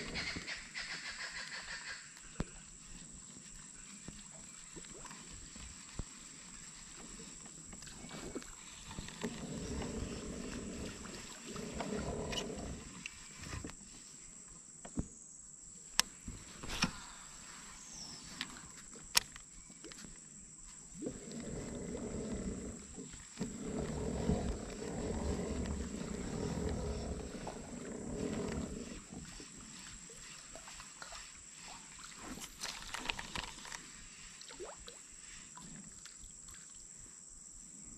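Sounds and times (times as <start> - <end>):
fishing reel gear rumble: 6.9 - 13.8, 21.1 - 30.4.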